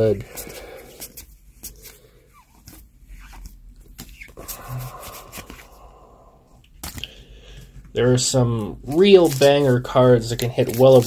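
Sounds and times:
cards sliding: 0:00.4 - 0:05.8, 0:09.2 - 0:09.7, 0:10.3 - 0:11.0.

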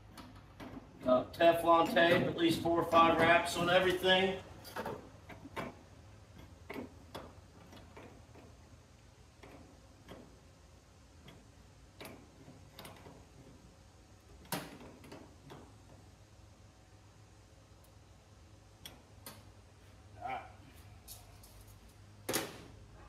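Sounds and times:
small fittings clicking and tapping: 0:09.4 - 0:10.5, 0:11.2 - 0:13.5.

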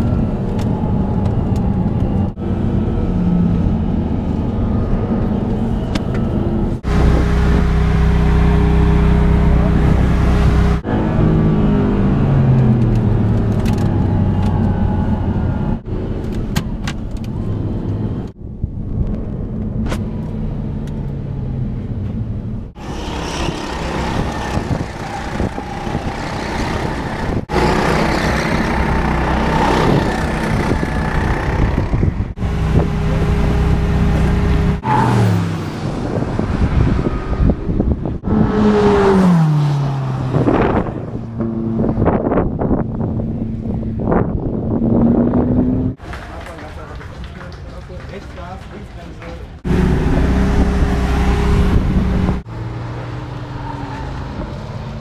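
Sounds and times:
kart engines on a track: 0:00.0 - 0:18.4, 0:19.1 - 0:46.5, 0:49.1 - 0:55.0
car speeding past: 0:34.7 - 0:42.4.

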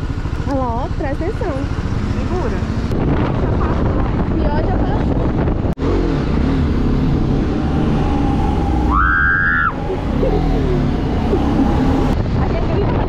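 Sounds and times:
motorcycle engine running: 0:00.0 - 0:08.8.

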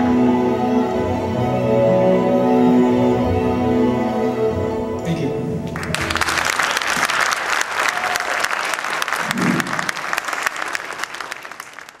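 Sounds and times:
audience applauding: 0:05.7 - 0:12.0.

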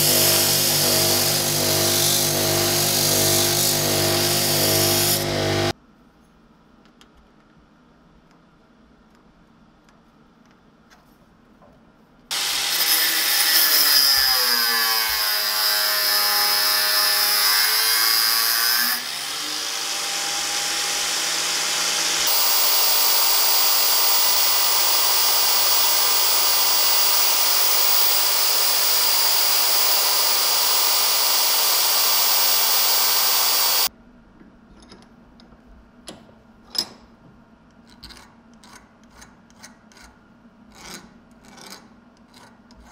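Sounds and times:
belt file grinding metal: 0:22.3 - 0:33.9.

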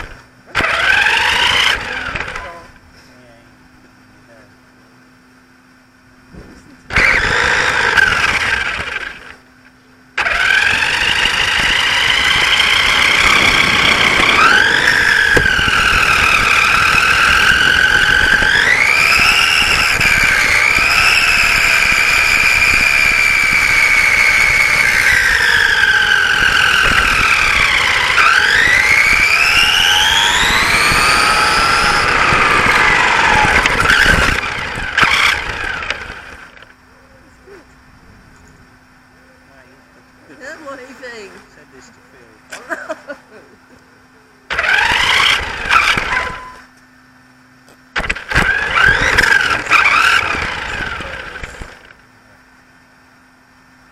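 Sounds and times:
toy car motor whining: 0:00.0 - 0:02.6, 0:06.9 - 0:09.4, 0:10.2 - 0:36.7, 0:44.5 - 0:46.7, 0:48.0 - 0:52.0.

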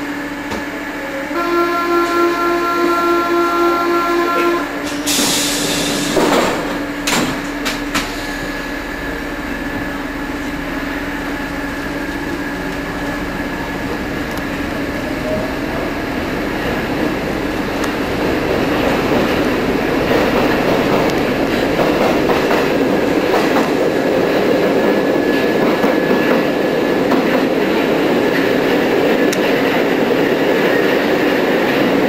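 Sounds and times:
train motor hum: 0:00.0 - 0:32.0
train running rumble: 0:00.0 - 0:32.0
train doors hissing: 0:00.1 - 0:14.1, 0:16.6 - 0:24.2
train doors clunking shut: 0:04.0 - 0:08.7, 0:17.8 - 0:24.1.

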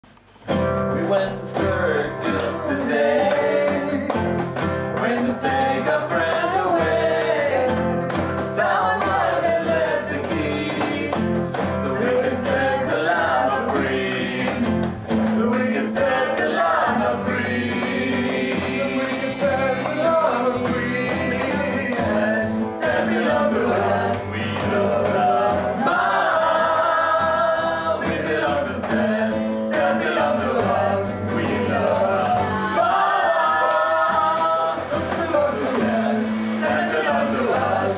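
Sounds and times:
strummed acoustic guitar: 0:00.3 - 0:37.9
people singing together: 0:00.8 - 0:37.9.

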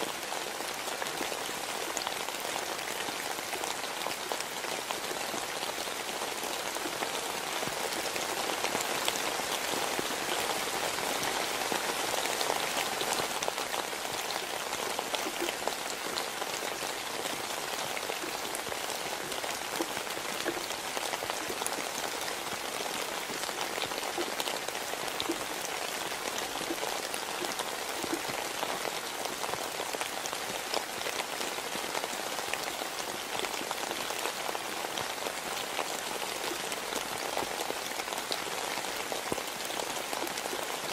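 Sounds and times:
steady rain hiss: 0:00.0 - 0:40.9
rain drop ticks: 0:16.8 - 0:22.6, 0:23.2 - 0:28.8.

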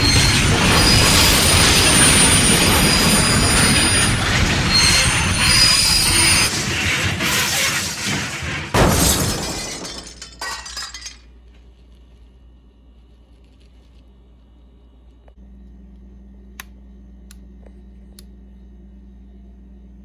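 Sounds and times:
model train crashing: 0:00.0 - 0:11.2.

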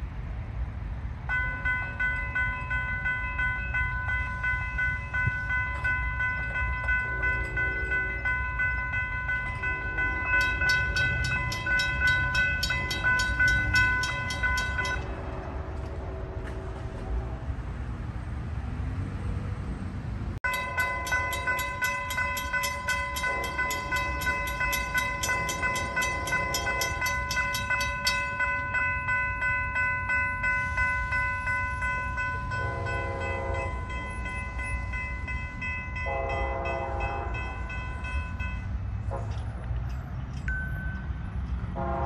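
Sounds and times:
railroad crossing bell ringing: 0:01.2 - 0:16.6, 0:20.4 - 0:42.0
train horn blasts: 0:32.5 - 0:34.1, 0:36.0 - 0:37.8, 0:39.0 - 0:39.7, 0:41.7 - 0:42.0.

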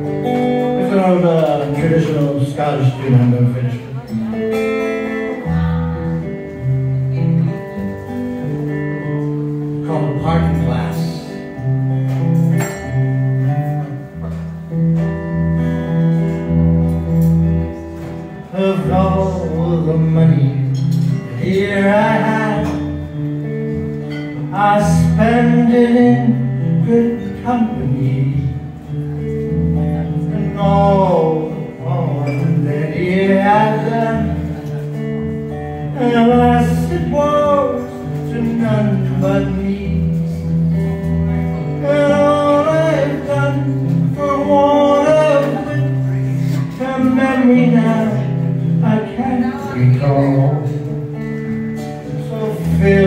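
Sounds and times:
acoustic guitar chords: 0:00.0 - 0:53.0
man singing a folk ballad: 0:00.4 - 0:04.1, 0:09.8 - 0:11.6, 0:18.4 - 0:28.9, 0:30.1 - 0:50.9, 0:52.1 - 0:53.0.

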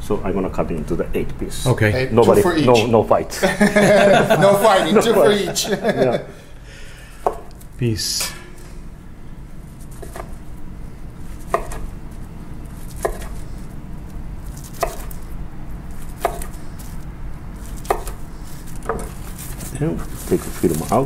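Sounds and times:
knife slicing sushi roll: 0:09.8 - 0:10.4, 0:12.7 - 0:13.7.

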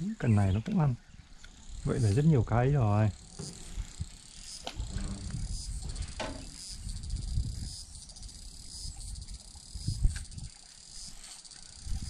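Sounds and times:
insects chirring: 0:00.0 - 0:12.0
low rumbles: 0:01.9 - 0:06.2
thump: 0:03.4 - 0:04.0, 0:06.1 - 0:06.6.

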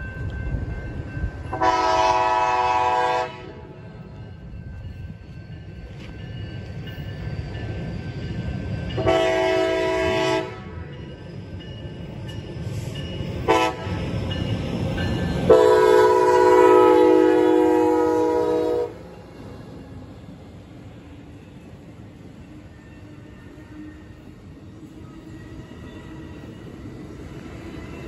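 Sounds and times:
train rumble: 0:00.0 - 0:28.0
locomotive horn blasts: 0:01.5 - 0:03.7, 0:09.0 - 0:10.8, 0:13.5 - 0:14.0, 0:15.5 - 0:19.0.

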